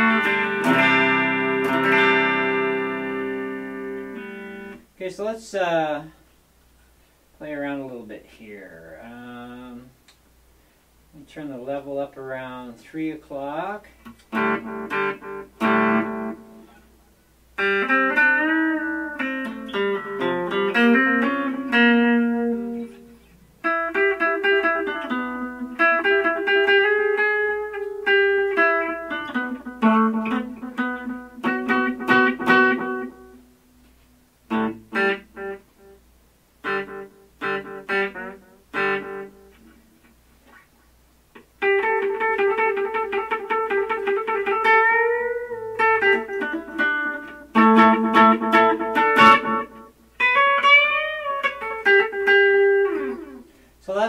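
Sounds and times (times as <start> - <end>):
electric guitar with delay: 0.0 - 4.8, 14.3 - 16.8, 17.6 - 33.5, 41.6 - 53.7.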